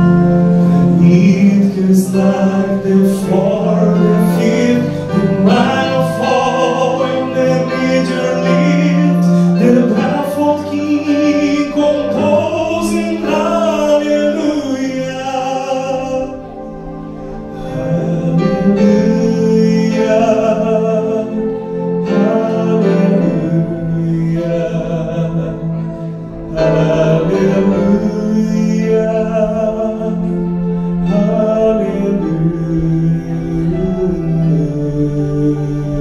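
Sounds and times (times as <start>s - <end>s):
person singing: 0.0s - 36.0s
slow music with held notes: 0.0s - 36.0s.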